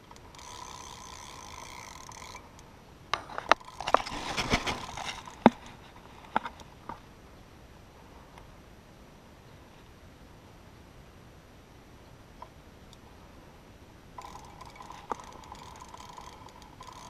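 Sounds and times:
fishing reel clutch buzzing: 0.0s - 2.7s, 3.4s - 5.6s, 14.2s - 17.0s.

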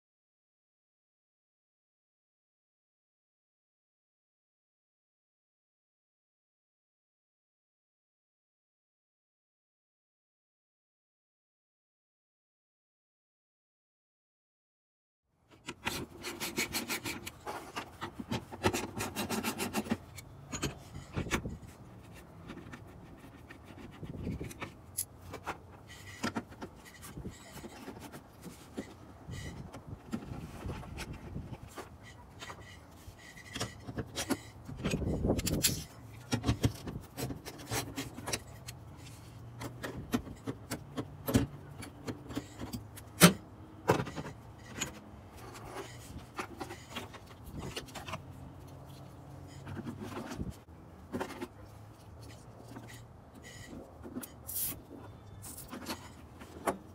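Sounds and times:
wires and plastic parts rattling: 15.5s - 56.9s
rubbing and knocking: 15.7s - 41.1s.

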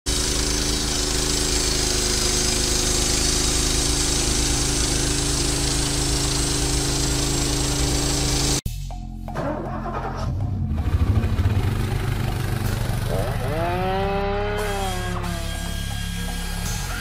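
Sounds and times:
sawmill engine running: 0.1s - 8.6s, 10.7s - 17.0s
band blade sawing log: 12.6s - 16.7s.

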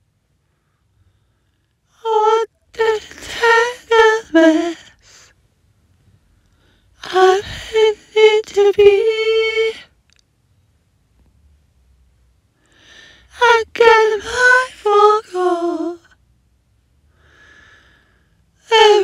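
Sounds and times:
woman singing: 2.0s - 5.0s, 7.0s - 9.9s, 13.3s - 16.1s, 18.6s - 19.0s.

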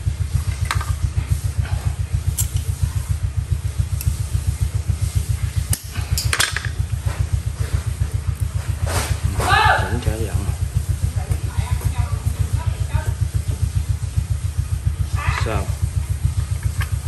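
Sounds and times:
motor running: 0.0s - 17.0s
pliers clicking on wire: 2.4s - 2.7s.

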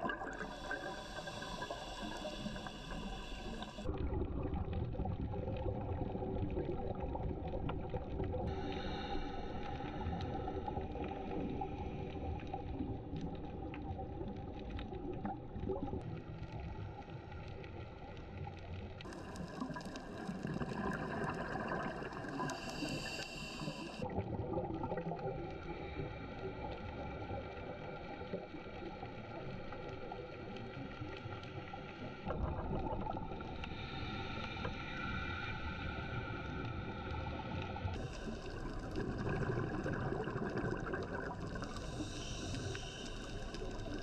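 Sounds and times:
faint steady tones: 0.0s - 3.9s, 16.3s - 24.2s
muffled underwater water noise: 0.0s - 44.0s.

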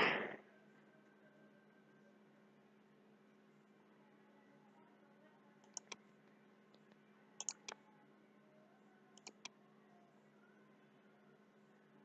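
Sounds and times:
faint steady hum: 0.0s - 12.0s
computer mouse clicking: 5.6s - 6.0s, 6.7s - 7.8s, 9.2s - 9.5s.

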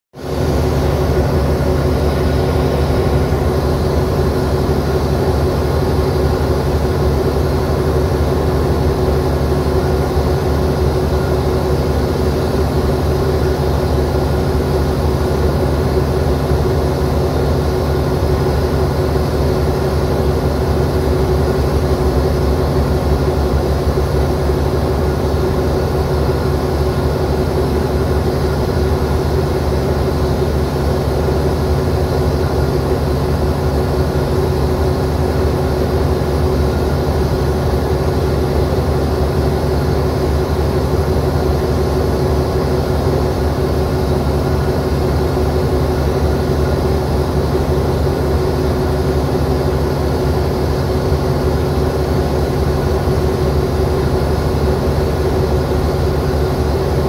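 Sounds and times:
diesel locomotive idling: 0.2s - 57.0s.

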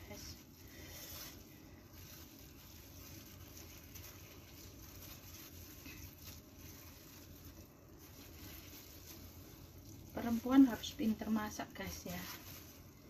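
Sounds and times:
low steady hum: 0.0s - 13.0s.

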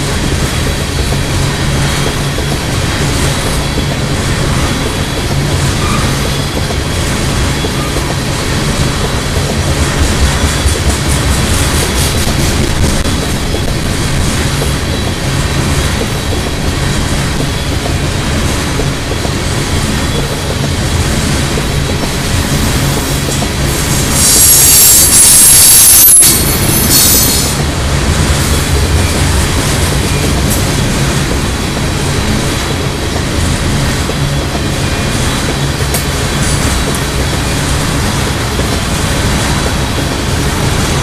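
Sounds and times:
train wheels rumbling on rails: 0.0s - 41.0s
high-pitched wheel squeal: 5.7s - 6.7s, 24.1s - 27.6s.

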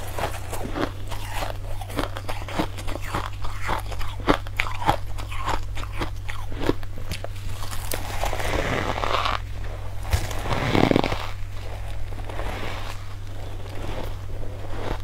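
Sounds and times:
chewing crunchy ice: 0.0s - 15.0s
low steady hum: 0.0s - 15.0s.

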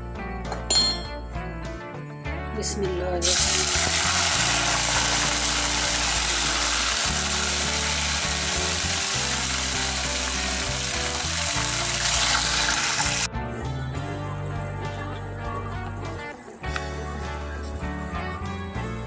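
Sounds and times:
food sizzling in a frying pan: 3.2s - 13.3s.

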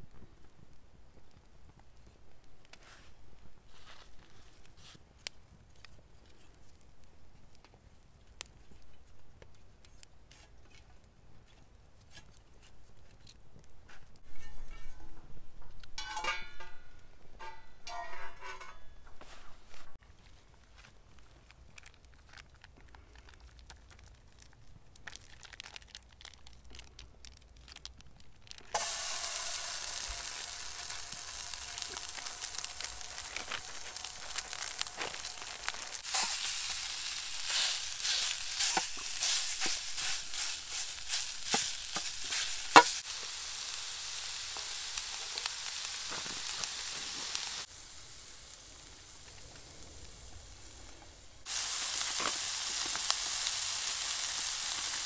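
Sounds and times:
wooden stick scraping a pan: 10.3s - 15.2s, 17.4s - 20.0s, 28.8s - 43.0s
meat sizzling in a pan: 28.7s - 55.0s.

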